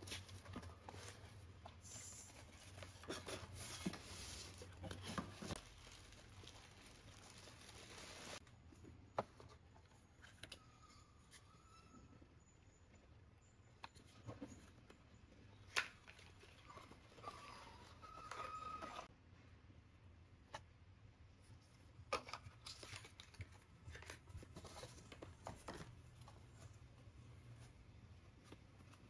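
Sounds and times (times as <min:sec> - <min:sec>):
cardboard flaps rustling and scraping: 0:02.2 - 0:06.1.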